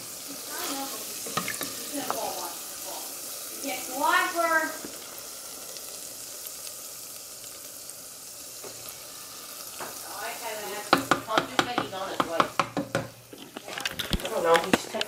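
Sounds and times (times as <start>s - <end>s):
oil sizzling: 0.0s - 15.0s
spoon knocking against pot: 10.9s - 13.2s.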